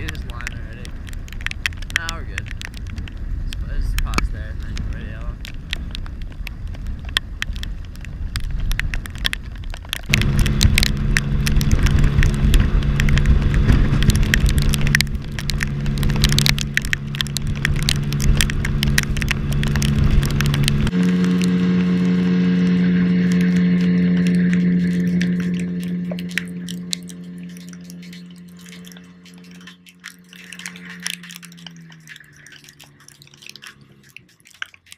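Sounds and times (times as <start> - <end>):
outboard motor running: 0.0 - 34.9
rain and wind on camera: 0.0 - 34.9
sharp drop clicks: 8.3 - 34.9.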